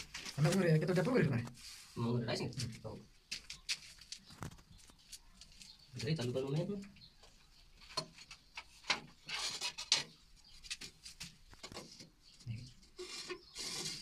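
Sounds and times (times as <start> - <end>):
trowel scraping: 13.0 - 14.0.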